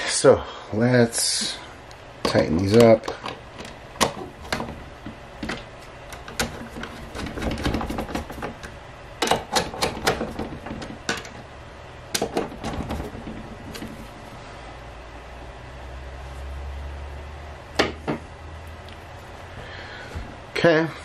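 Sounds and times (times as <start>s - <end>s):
screwdriver clicks and taps on metal: 8.5s - 11.4s.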